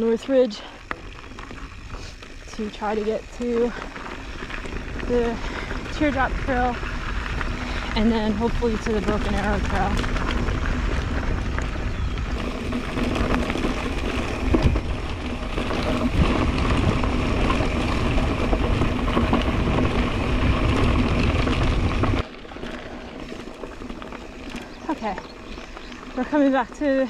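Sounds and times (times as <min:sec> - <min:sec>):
tyres rolling on gravel: 0:00.0 - 0:27.0
wind on microphone: 0:03.2 - 0:22.2.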